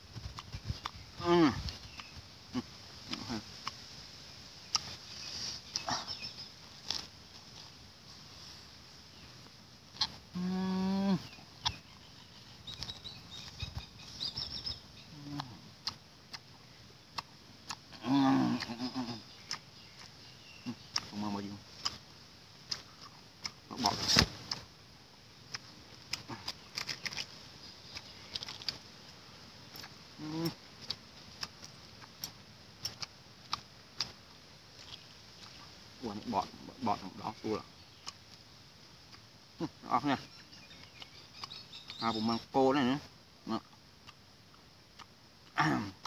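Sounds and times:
mouth clicks and smacks: 0.1s - 3.8s, 4.7s - 5.1s, 11.2s - 12.1s, 12.7s - 22.0s, 22.6s - 24.7s, 25.5s - 28.9s, 29.7s - 35.7s, 37.9s - 38.4s, 39.1s - 42.3s, 43.5s - 46.0s
low voice hum: 1.1s - 1.8s, 2.5s - 3.5s, 10.3s - 11.5s, 15.1s - 15.8s, 17.9s - 19.3s, 30.1s - 30.7s
pitched animal call: 17.9s - 19.6s, 30.2s - 30.6s.

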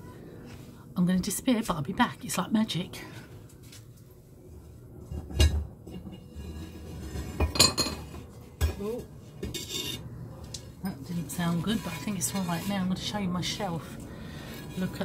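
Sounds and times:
ceramic kiln shelves clinking: 5.1s - 10.1s.

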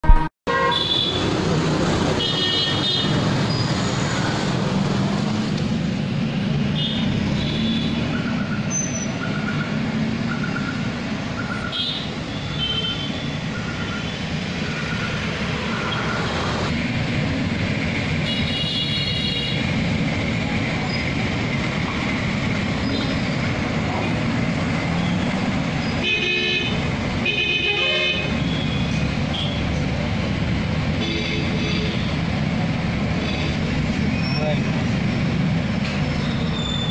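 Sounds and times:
vehicle horn toots: 0.0s - 1.2s, 26.0s - 29.6s
bus diesel engines running: 0.5s - 36.9s.

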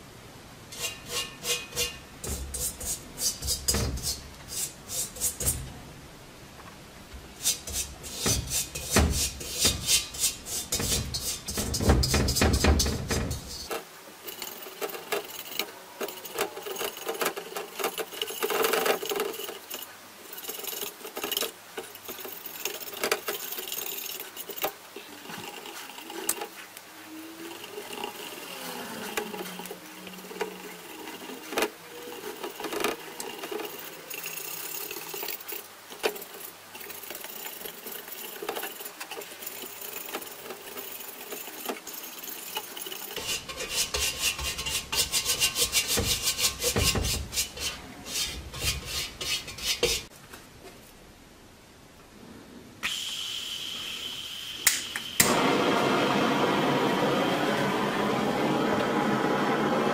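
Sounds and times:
brush scratching on steel helmet: 7.4s - 13.7s, 42.8s - 50.1s.

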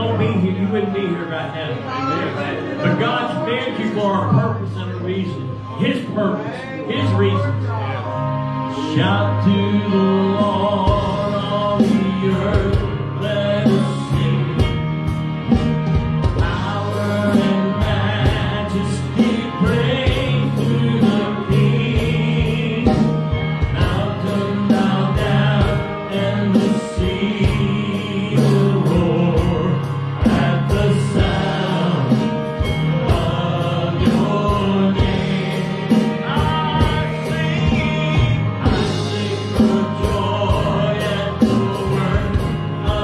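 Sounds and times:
electric guitars: 0.0s - 43.0s
keyboard: 0.0s - 43.0s
voices singing together: 8.7s - 15.6s, 16.2s - 43.0s
drum kit beat: 9.1s - 43.0s.

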